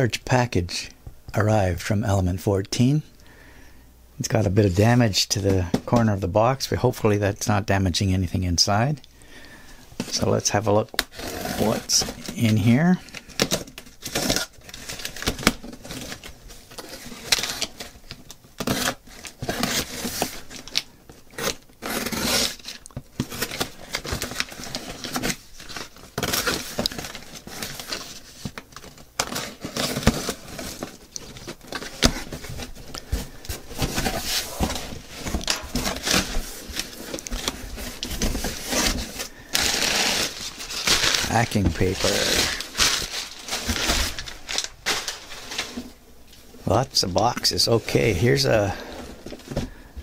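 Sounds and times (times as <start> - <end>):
cardboard scraping and tearing: 11.1 - 18.0, 18.6 - 46.0
scissors cutting packing tape: 20.7 - 25.3.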